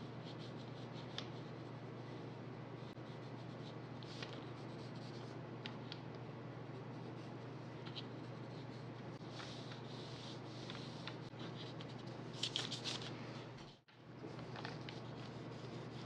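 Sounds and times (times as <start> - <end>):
steady low hum: 0.0 - 16.0
pencil scratching on paper: 2.8 - 5.4, 14.7 - 16.0.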